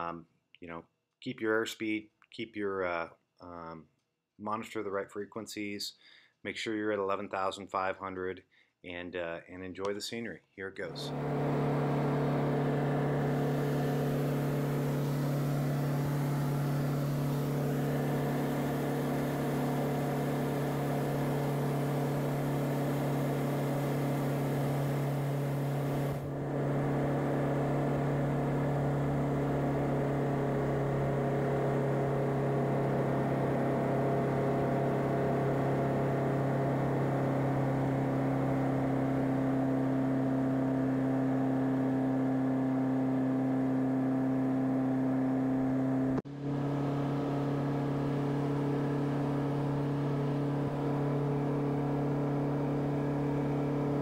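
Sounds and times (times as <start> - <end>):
aircraft engine and propeller droning: 11.0 - 38.5.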